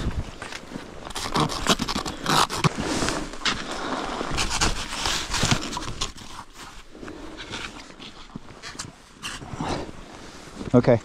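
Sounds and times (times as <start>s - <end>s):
skis scraping on snow: 2.6s - 7.4s.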